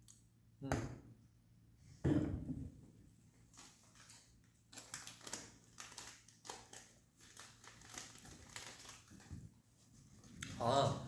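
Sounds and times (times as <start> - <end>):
paper napkin crinkling: 3.5 - 9.3.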